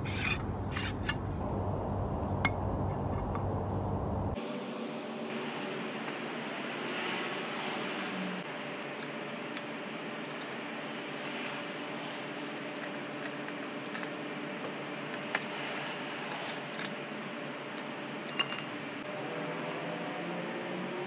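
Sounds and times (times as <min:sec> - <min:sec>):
steady low hum: 0:00.0 - 0:04.4
ringing metal clink: 0:02.4 - 0:03.1, 0:18.3 - 0:18.8.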